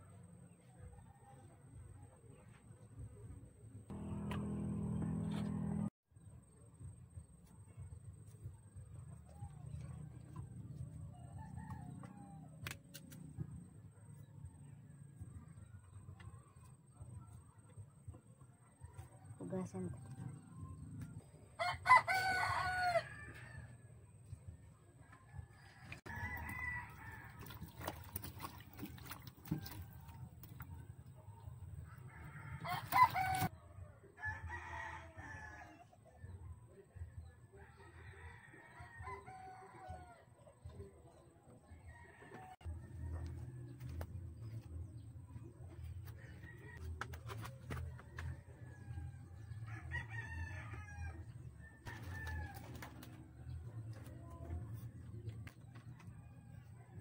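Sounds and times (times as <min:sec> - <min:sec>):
low rumble: 0:03.9 - 0:07.2
rooster crowing: 0:21.6 - 0:23.5, 0:25.8 - 0:28.1, 0:32.1 - 0:33.5
roosters crowing: 0:21.6 - 0:23.7, 0:25.6 - 0:30.1, 0:31.9 - 0:33.5, 0:46.1 - 0:53.4.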